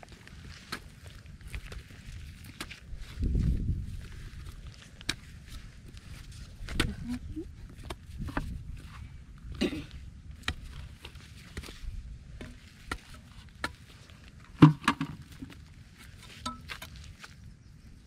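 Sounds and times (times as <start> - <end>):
digging bar knocking hard clay: 14.5 - 15.3.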